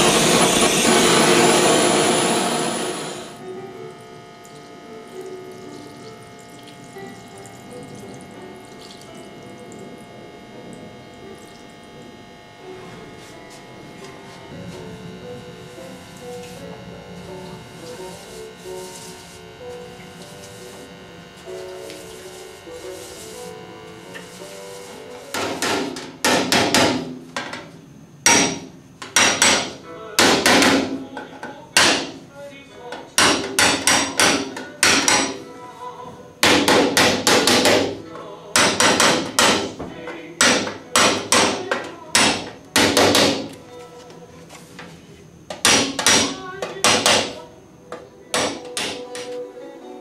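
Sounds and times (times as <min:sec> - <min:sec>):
hammer striking metal punch: 0:28.3 - 0:31.0, 0:33.2 - 0:35.4, 0:40.4 - 0:41.6, 0:45.6 - 0:47.4.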